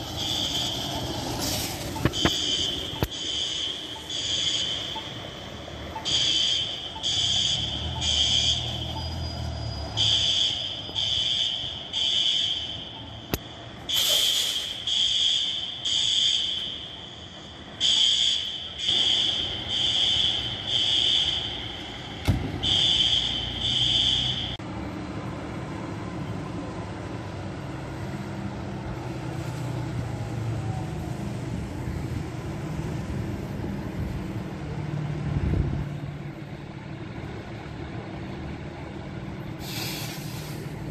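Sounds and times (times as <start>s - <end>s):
fire alarm beeping: 0.0s - 1.2s, 2.0s - 24.6s.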